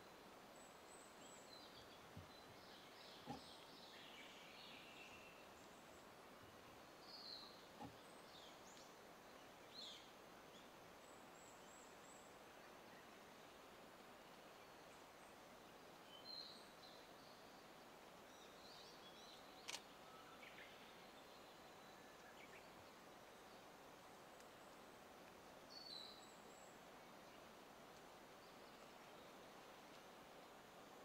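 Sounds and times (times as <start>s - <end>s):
faint bird chirps: 0.0s - 23.8s
sharp click: 19.6s - 19.8s.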